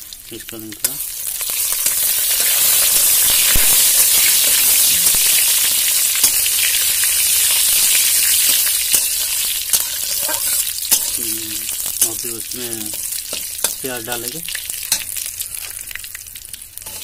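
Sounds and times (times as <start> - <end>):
leaves sizzling in hot oil: 0.0 - 17.0
metal spatula scraping pan: 8.6 - 12.2.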